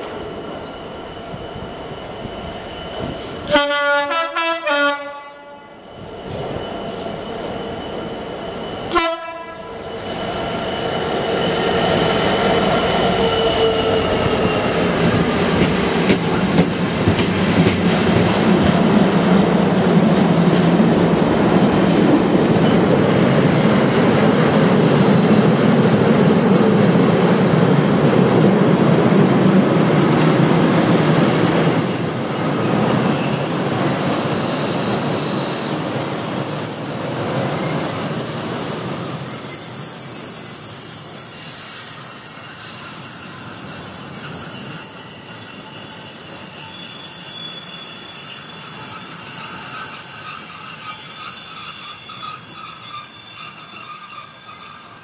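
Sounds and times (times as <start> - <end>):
diesel locomotive engines passing: 0.0 - 55.0
train horn blast: 3.5 - 5.8, 8.9 - 9.7
wagons clattering over rail joints: 14.0 - 21.9
wheel squeal: 31.7 - 55.0.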